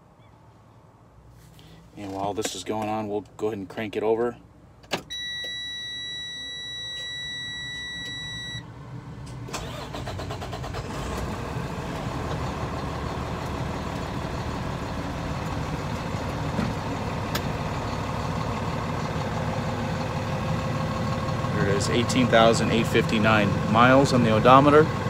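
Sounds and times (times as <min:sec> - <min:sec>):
electronic warning tone: 0:05.1 - 0:08.6
diesel engine idling: 0:05.2 - 0:25.0
diesel engine starter cranking: 0:09.2 - 0:25.0.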